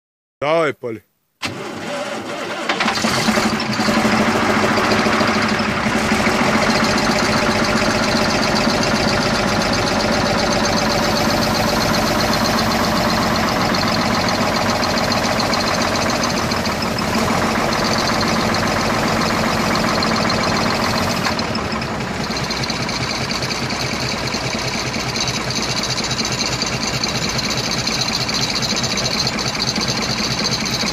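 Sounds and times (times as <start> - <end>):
truck diesel engine idling: 2.8 - 30.9.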